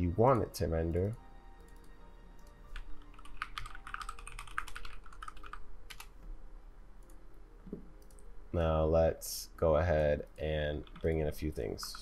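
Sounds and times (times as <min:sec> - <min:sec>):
keyboard typing: 0:00.9 - 0:06.2, 0:08.0 - 0:08.2, 0:10.2 - 0:12.0.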